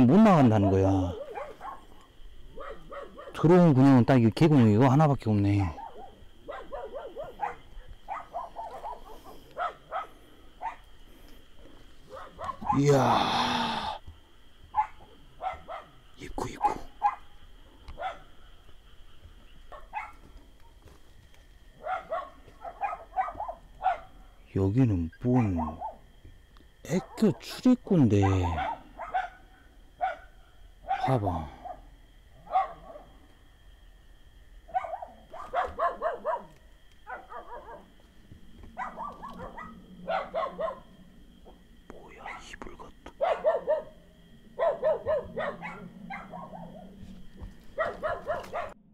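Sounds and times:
dog barking: 0:00.3 - 0:03.5, 0:05.6 - 0:10.9, 0:12.1 - 0:12.9, 0:14.7 - 0:17.3, 0:17.9 - 0:18.3, 0:19.7 - 0:20.2, 0:21.8 - 0:24.2, 0:25.2 - 0:26.0, 0:26.9 - 0:27.5, 0:28.1 - 0:33.2, 0:34.7 - 0:38.0, 0:38.7 - 0:41.0, 0:42.2 - 0:47.0, 0:47.7 - 0:48.8.

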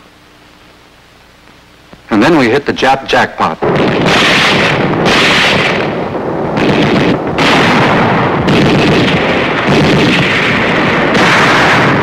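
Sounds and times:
explosions: 0:03.6 - 0:12.0
gunfire: 0:03.6 - 0:12.0.

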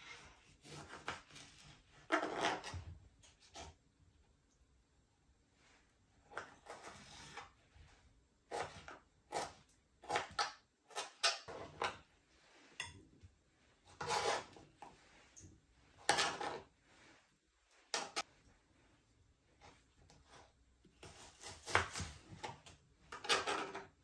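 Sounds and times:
knife scraping cutting board: 0:00.0 - 0:03.8, 0:06.3 - 0:07.6, 0:08.5 - 0:13.0, 0:13.8 - 0:17.2, 0:19.6 - 0:24.0.

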